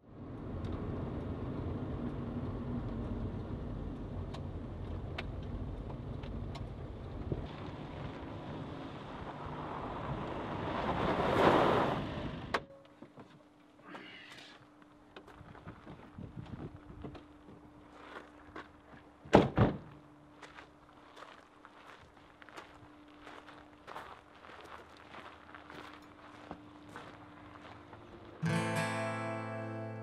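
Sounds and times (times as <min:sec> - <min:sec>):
tyres on gravel: 0:04.2 - 0:13.0, 0:13.9 - 0:28.9.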